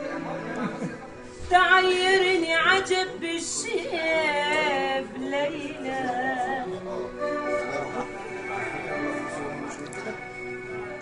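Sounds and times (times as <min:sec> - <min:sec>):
woman singing with vibrato: 0:01.5 - 0:06.8.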